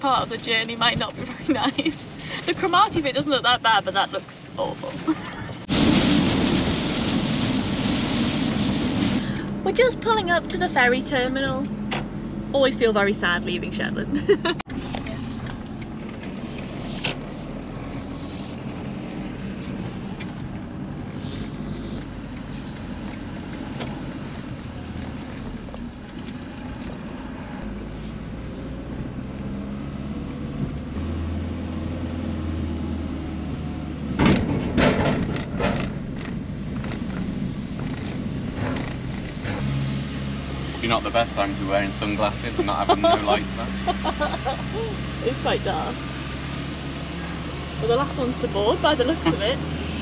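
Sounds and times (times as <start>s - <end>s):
vehicle engine and road rumble: 0.0s - 50.0s
loud knocks and rattles: 34.2s - 39.6s.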